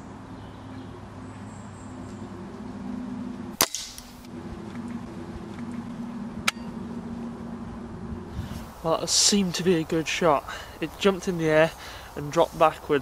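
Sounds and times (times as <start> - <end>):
air rifle shot crack: 3.6 - 4.3.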